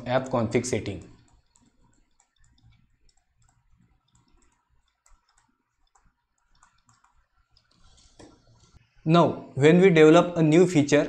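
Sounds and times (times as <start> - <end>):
computer mouse clicks: 0.8 - 8.8.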